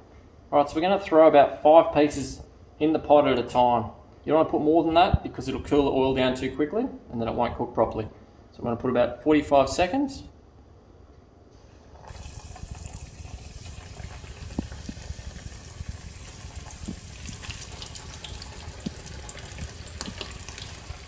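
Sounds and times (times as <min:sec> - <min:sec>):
food frying in hot oil: 0:12.0 - 0:21.0.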